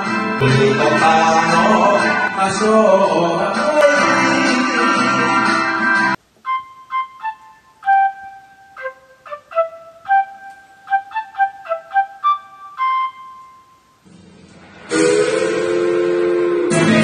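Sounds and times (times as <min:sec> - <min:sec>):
solo flute melody: 0:04.0 - 0:14.0.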